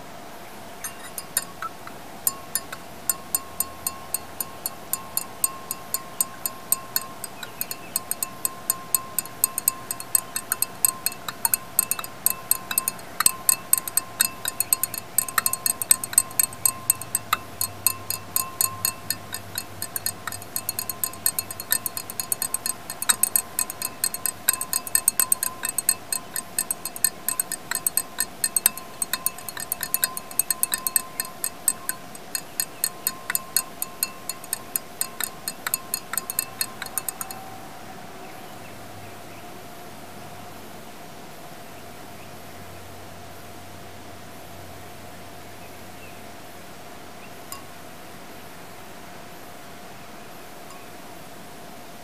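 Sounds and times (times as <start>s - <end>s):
faint steady tone: 0.7s - 38.4s
glass rod clinking in beaker: 0.8s - 37.5s.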